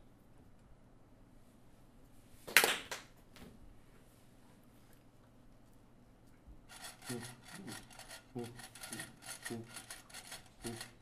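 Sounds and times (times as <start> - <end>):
rhythmic scraping on wood: 6.7 - 11.0.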